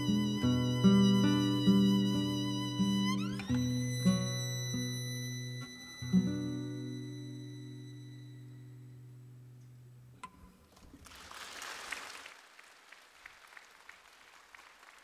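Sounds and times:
classical guitar chord ringing: 0.0 - 10.5
audience applause: 11.0 - 15.0.

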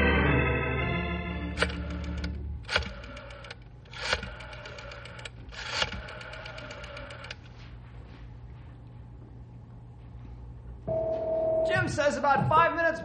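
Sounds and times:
loud dial clacks: 1.6 - 7.4
rotary telephone dial clicks: 1.6 - 7.4.

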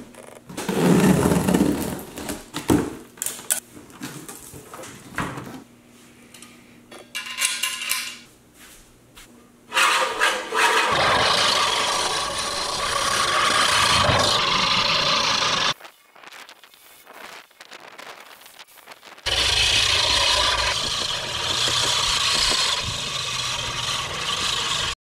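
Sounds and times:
reel mower cutting grass: 10.6 - 15.8, 19.3 - 25.0.

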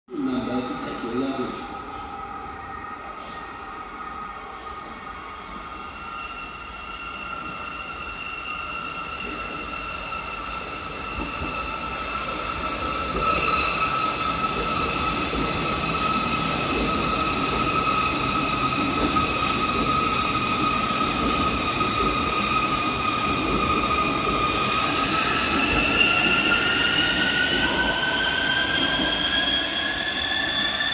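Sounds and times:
high train whine: 0.1 - 30.9
train wheels rumbling on rail: 8.7 - 30.9.

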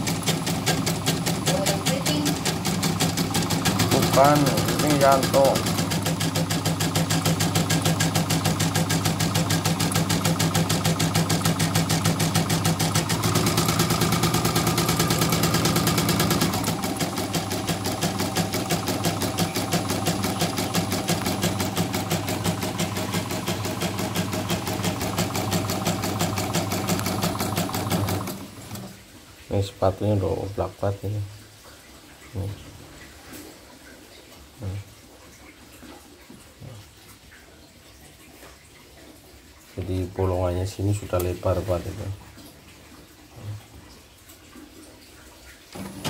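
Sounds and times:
embroidery machine needle clatter: 0.0 - 29.0, 45.8 - 46.0.

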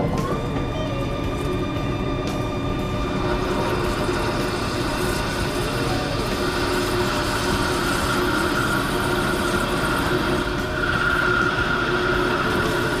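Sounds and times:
lathe cutting noise: 0.0 - 13.0
coolant spray: 3.1 - 13.0.

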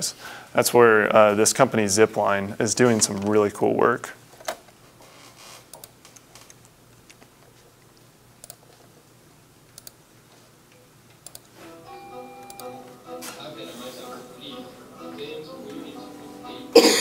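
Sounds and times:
faint clicks: 7.9 - 8.8, 10.7 - 11.5
music from a video: 11.7 - 16.9.

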